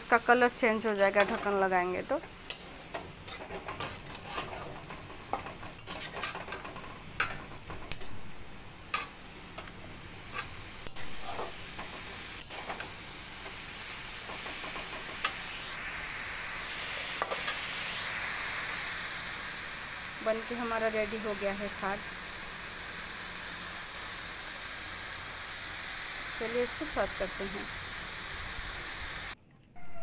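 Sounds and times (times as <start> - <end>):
frying sizzle: 0.0 - 29.4
spatula scraping metal pan: 0.9 - 1.4, 2.5 - 8.2, 10.3 - 12.8.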